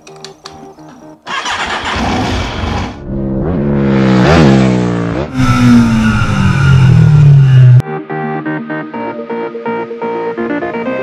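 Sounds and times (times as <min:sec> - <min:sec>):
engine revving: 0:01.3 - 0:07.8
low drone sinking in pitch: 0:05.3 - 0:07.8.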